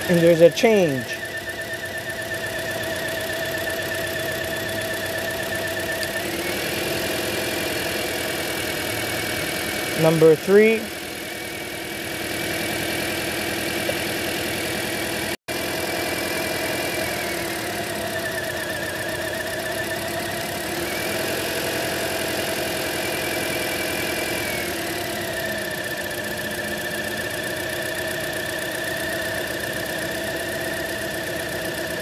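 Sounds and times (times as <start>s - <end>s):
car engine idling roughly: 0.0s - 32.0s.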